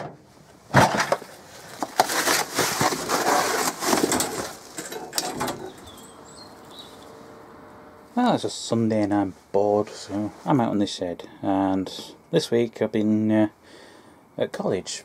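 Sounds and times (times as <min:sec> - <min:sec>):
faint bird chirps: 0:05.7 - 0:07.2.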